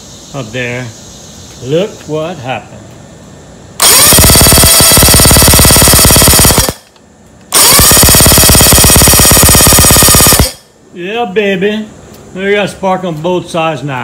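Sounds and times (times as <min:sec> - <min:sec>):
electric starter cranking: 0:03.8 - 0:10.6.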